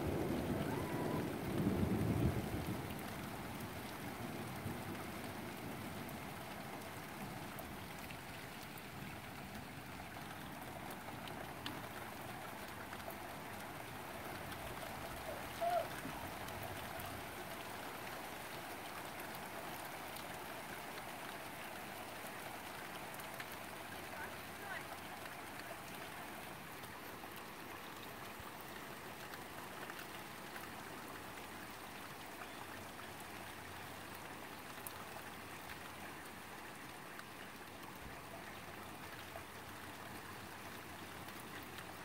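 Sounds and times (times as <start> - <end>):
low rumble of thunder: 0.0 - 7.8
steady rain falling: 0.0 - 42.0.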